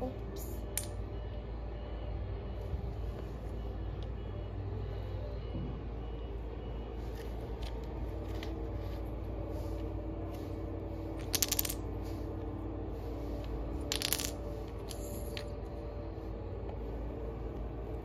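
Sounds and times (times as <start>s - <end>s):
steady low hum: 0.0s - 18.0s
wooden blocks clicking on tiles: 0.6s - 1.0s, 11.1s - 12.0s, 13.8s - 15.6s
blocks clattering and falling: 11.0s - 12.1s, 13.5s - 15.7s.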